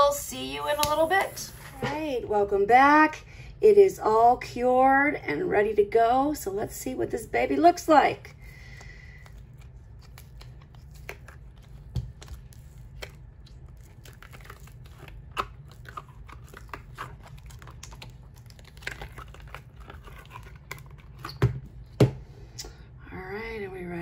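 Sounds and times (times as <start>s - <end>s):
silicone mold crackling and popping: 8.6s - 22.1s.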